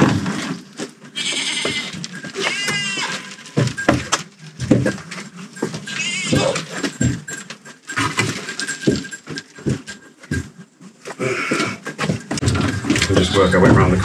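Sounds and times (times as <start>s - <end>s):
goats bleating: 1.2s - 3.6s, 5.9s - 6.8s.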